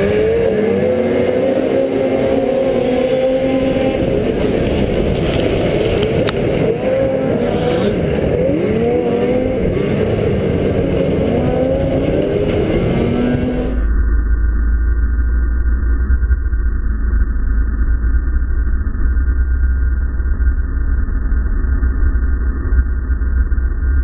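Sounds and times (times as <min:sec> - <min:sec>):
snowmobile engines revving: 0:00.0 - 0:13.9.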